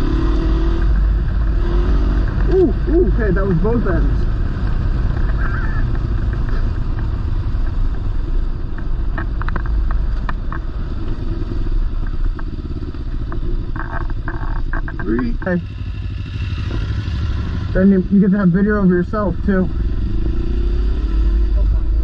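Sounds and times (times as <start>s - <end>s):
motorcycle engine running: 0.0s - 22.0s
road and wind rumble: 0.0s - 22.0s.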